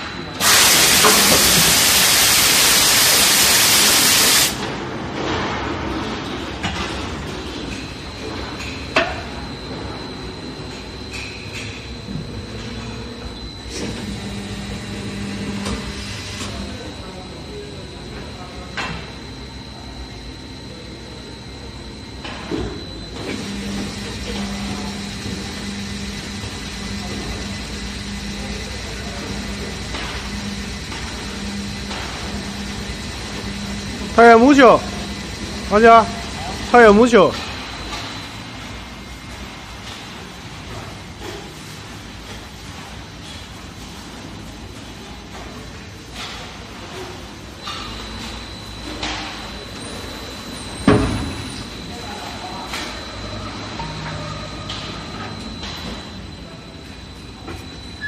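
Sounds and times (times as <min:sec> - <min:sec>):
injection moulding machine humming: 0:00.0 - 0:58.0
compressed air hiss: 0:00.4 - 0:04.6.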